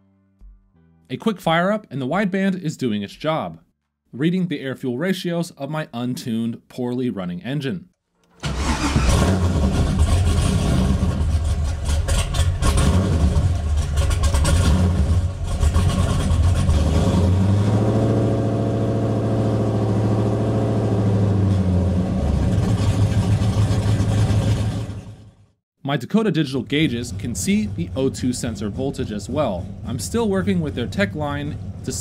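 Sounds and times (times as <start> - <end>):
car engine running unevenly: 19.0 - 25.3.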